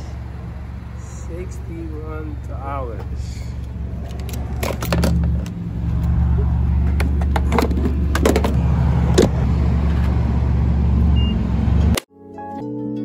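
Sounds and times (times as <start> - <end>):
gas pump button beep: 11.2 - 11.4.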